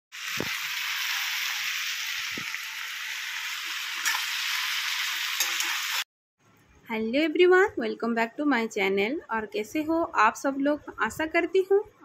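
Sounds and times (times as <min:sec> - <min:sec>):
vegetables sizzling in hot oil: 0:00.1 - 0:06.0.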